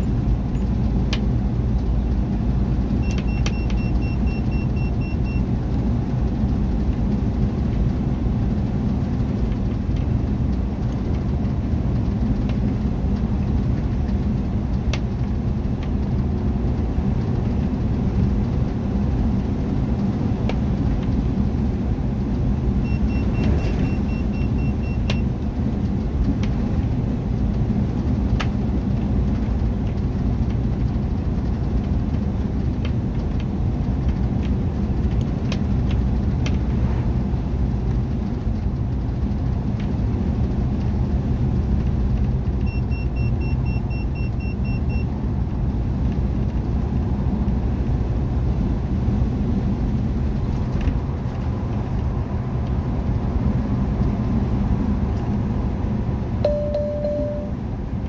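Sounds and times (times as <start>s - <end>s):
engine and tyre rumble: 0.0s - 58.0s
rapid high beeping: 56.5s - 57.6s.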